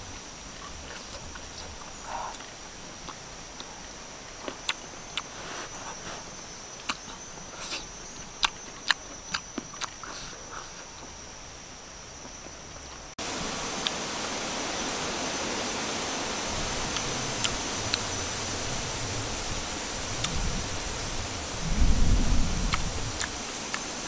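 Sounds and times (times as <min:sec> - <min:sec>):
high insect drone: 0:00.0 - 0:24.0
steady hiss: 0:00.0 - 0:24.0
mouth chewing clicks and smacks: 0:04.4 - 0:05.3, 0:06.8 - 0:11.1.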